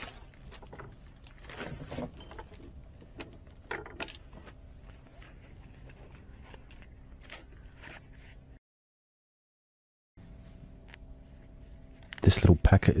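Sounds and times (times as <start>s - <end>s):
small metal tools clinking: 2.1s - 4.4s.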